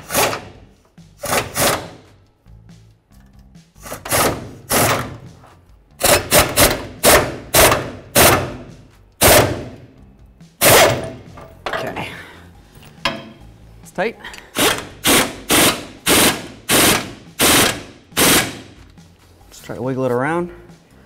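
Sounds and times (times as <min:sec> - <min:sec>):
impact wrench hammering: 0:00.0 - 0:00.6, 0:01.2 - 0:02.1, 0:03.8 - 0:05.2, 0:06.0 - 0:09.8, 0:10.6 - 0:11.5, 0:13.0 - 0:13.4, 0:14.5 - 0:18.8.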